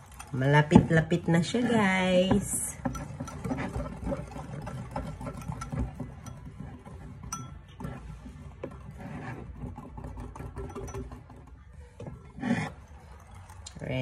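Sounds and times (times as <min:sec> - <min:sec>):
whisk clicking against bowl: 0:00.0 - 0:11.6.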